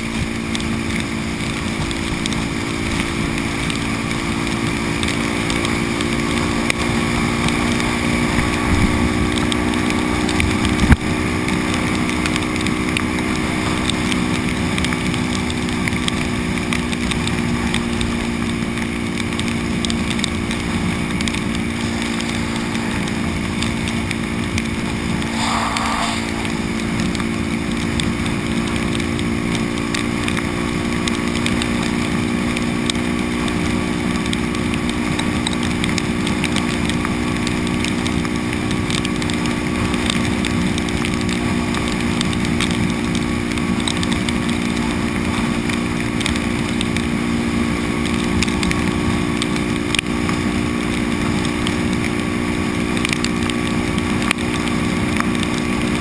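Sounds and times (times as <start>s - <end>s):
motorcycle engine running: 0.0s - 56.0s
wet road noise: 0.0s - 56.0s
wind noise: 19.8s - 28.4s
brief high-pitched sound: 25.3s - 27.0s.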